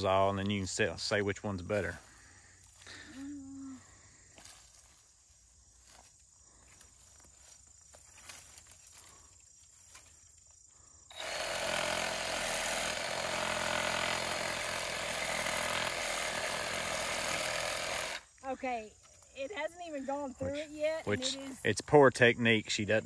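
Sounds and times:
reciprocating saw cutting branch: 0:11.1 - 0:18.2.

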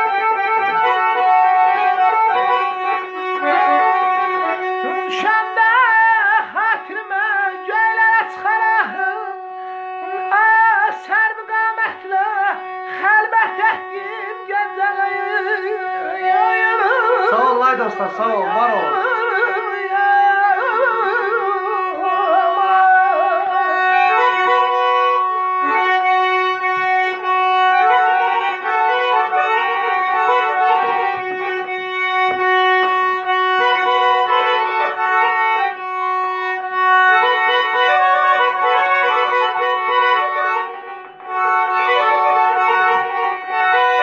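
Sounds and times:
button accordion melody: 0:00.0 - 0:44.0
person singing ornamented: 0:17.3 - 0:18.9.

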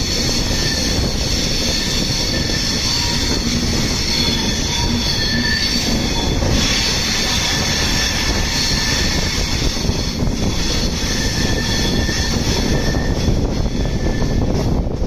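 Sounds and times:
high wheel squeal: 0:00.0 - 0:15.0
rushing air: 0:00.0 - 0:15.0
train wheels rumbling on rails: 0:00.0 - 0:15.0.

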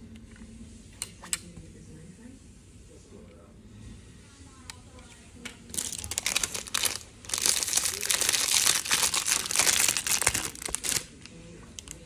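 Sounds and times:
plastic packaging crinkling: 0:05.7 - 0:12.0.

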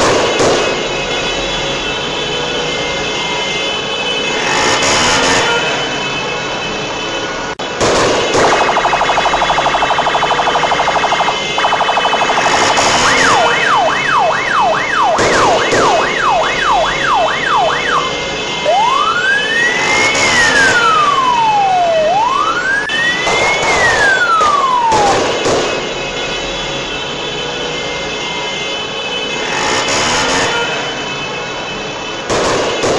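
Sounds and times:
traffic noise: 0:00.0 - 0:32.9
electronic vehicle siren: 0:08.2 - 0:26.6.

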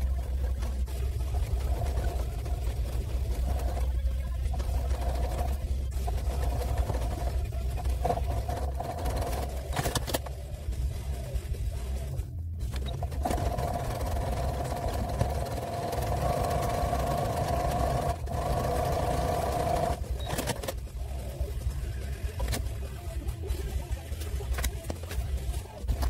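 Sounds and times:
sewing machine motor whine: 0:12.8 - 0:20.7.

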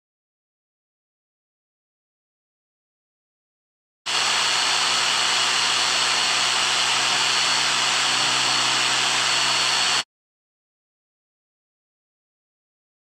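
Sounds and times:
electric demolition hammer running: 0:04.1 - 0:10.0.

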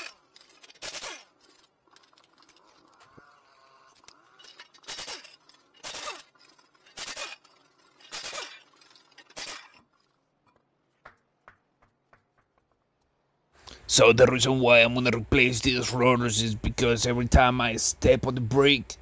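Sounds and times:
impact wrench rattling: 0:00.0 - 0:10.2.

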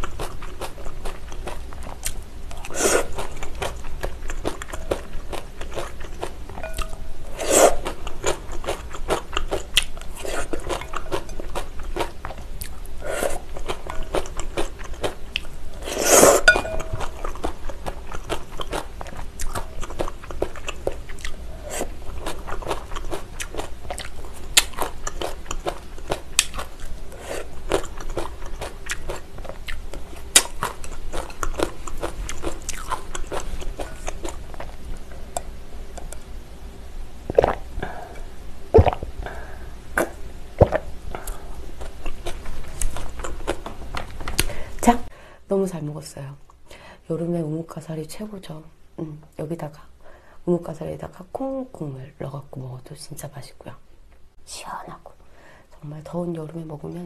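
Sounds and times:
chewing with soft crunching: 0:00.0 - 0:07.0, 0:07.6 - 0:36.3, 0:37.3 - 0:44.7.

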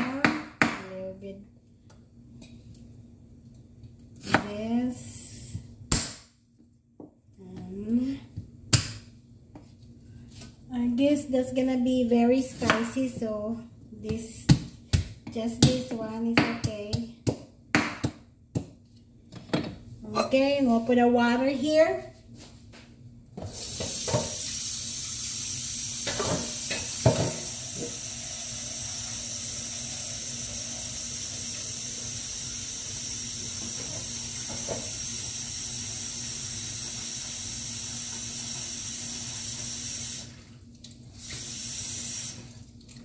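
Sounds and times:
tap water running into pot: 0:23.6 - 0:40.4.

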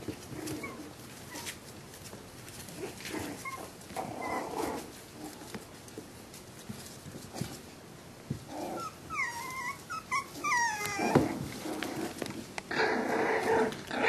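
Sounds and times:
puppies whining: 0:00.0 - 0:01.7, 0:02.9 - 0:05.0, 0:08.5 - 0:12.2
puppy play-growling: 0:00.0 - 0:07.7, 0:08.3 - 0:14.0.

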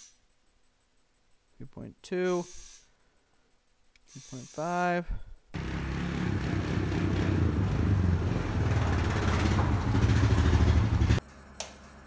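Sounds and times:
atv engine running: 0:05.6 - 0:11.2.

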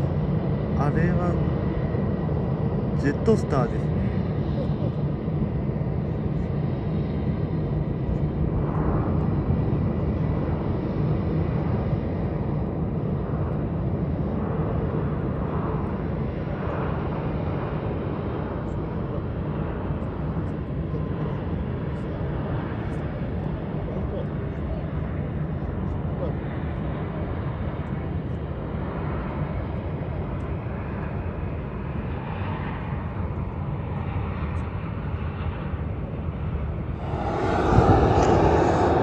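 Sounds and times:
jet engines rumbling: 0:00.0 - 0:23.7, 0:35.9 - 0:39.0.

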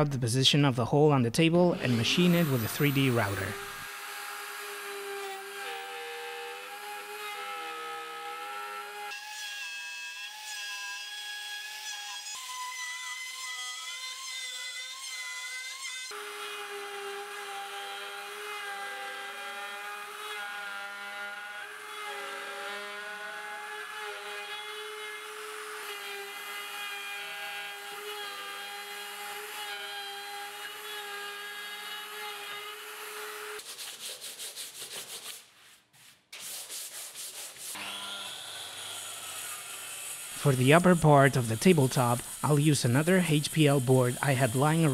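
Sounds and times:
rotary tool routing wood: 0:01.7 - 0:33.6, 0:37.5 - 0:44.9.

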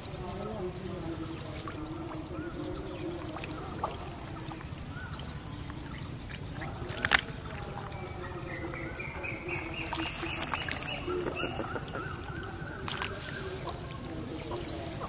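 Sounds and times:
trickling water: 0:00.0 - 0:15.0
wet fish slapping into bucket: 0:06.6 - 0:07.6, 0:09.9 - 0:11.9, 0:12.8 - 0:13.6.

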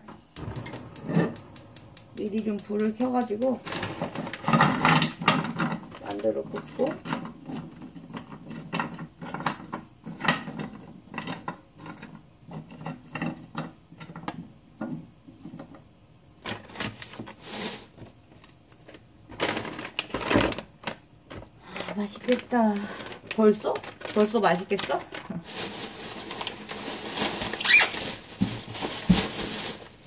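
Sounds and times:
dumplings knocking in frying pan: 0:00.0 - 0:05.4
hissing from frying pan: 0:00.0 - 0:05.4, 0:17.3 - 0:18.0.

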